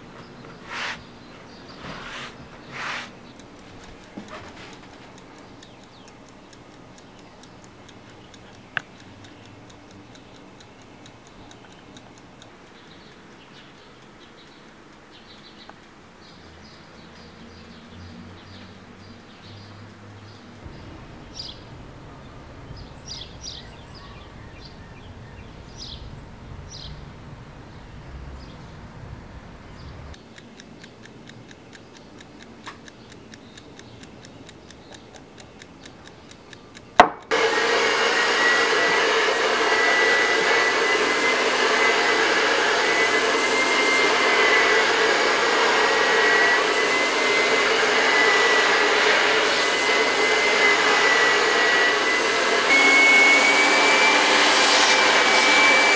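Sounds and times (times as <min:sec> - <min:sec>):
faint bird chirps: 0:12.6 - 0:30.4
hair dryer whining: 0:37.0 - 0:55.9.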